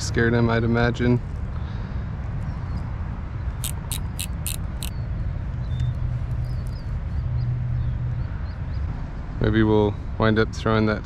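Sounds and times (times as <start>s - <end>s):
sharp clicks: 3.6s - 4.9s.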